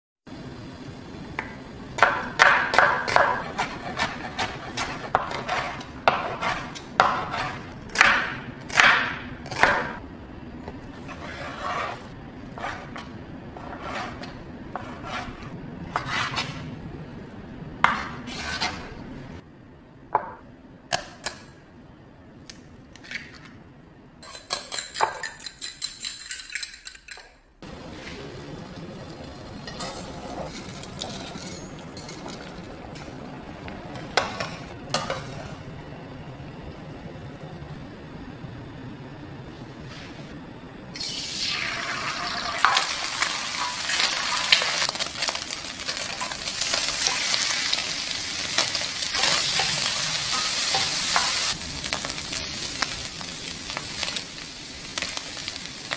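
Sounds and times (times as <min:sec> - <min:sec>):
boiling water hissing: 0:27.6 - 0:31.9, 0:40.9 - 0:55.9.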